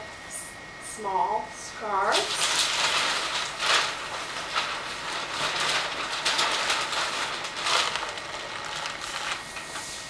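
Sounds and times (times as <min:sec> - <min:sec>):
paper rustling and crinkling: 0:02.2 - 0:10.0.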